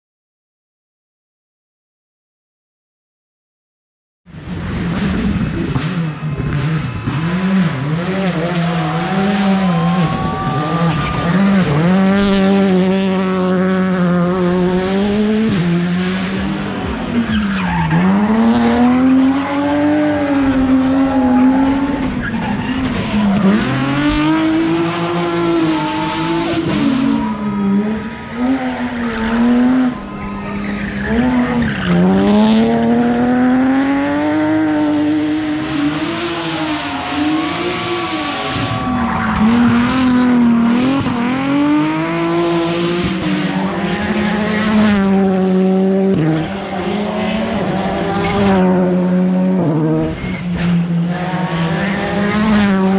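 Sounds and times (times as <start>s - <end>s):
rally car engines revving: 4.3s - 52.9s
tyre squeal: 50.0s - 50.8s.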